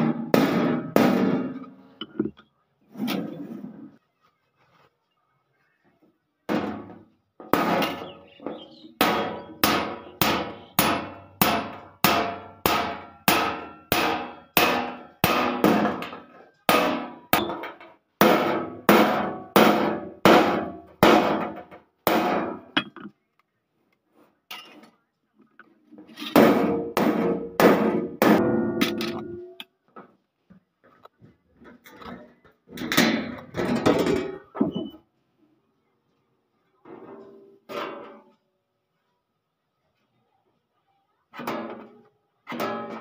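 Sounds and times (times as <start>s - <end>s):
hammer striking chisel on steel: 7.6s - 17.6s.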